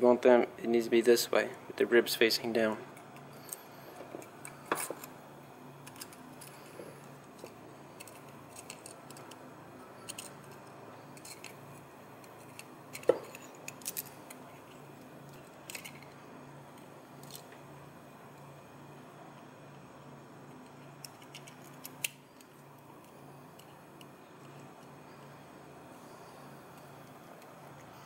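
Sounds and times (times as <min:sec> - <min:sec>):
faint low hum: 0:00.0 - 0:28.0
small metal parts clinking: 0:05.8 - 0:09.4, 0:10.0 - 0:16.2, 0:17.2 - 0:17.6, 0:21.0 - 0:22.6.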